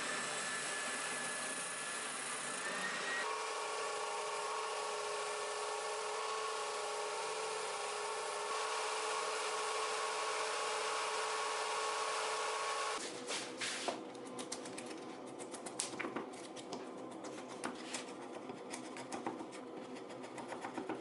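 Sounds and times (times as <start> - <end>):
spindle sander whining: 0.0 - 13.0
belt sander sanding wood: 0.0 - 13.1.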